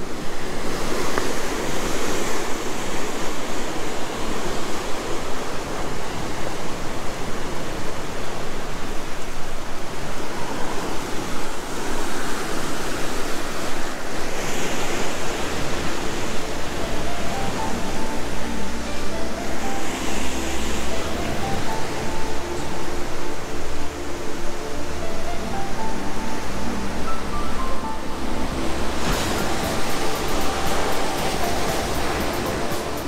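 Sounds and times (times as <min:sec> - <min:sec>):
waves breaking on rocks: 0:27.6 - 0:33.0.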